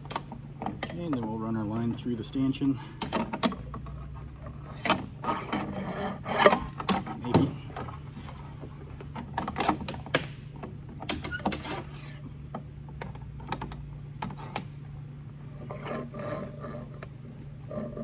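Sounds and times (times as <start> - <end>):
steady low hum: 0.0 - 18.0
metallic clicks and scrapes of wire: 11.0 - 12.3.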